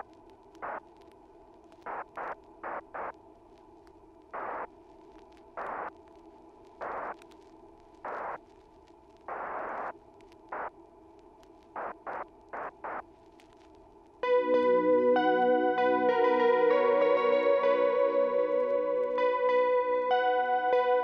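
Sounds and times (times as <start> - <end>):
static-like noise bursts: 0.0 - 14.2
electronic drone of held tones: 14.2 - 21.0.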